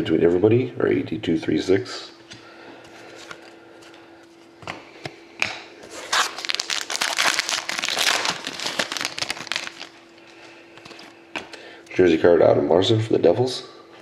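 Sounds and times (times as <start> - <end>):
foil wrapper crinkling: 6.0 - 11.0.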